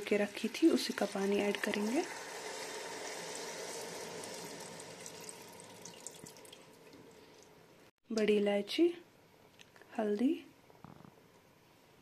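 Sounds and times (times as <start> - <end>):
water pouring and splashing: 0.0 - 7.6.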